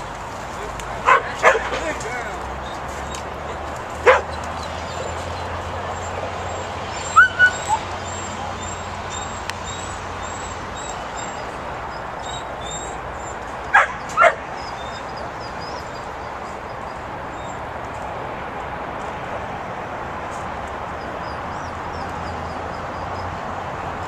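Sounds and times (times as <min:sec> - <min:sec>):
steady background noise: 0:00.0 - 0:24.0
puppy barking: 0:01.0 - 0:01.8, 0:04.0 - 0:04.4, 0:07.1 - 0:07.9, 0:13.7 - 0:14.5.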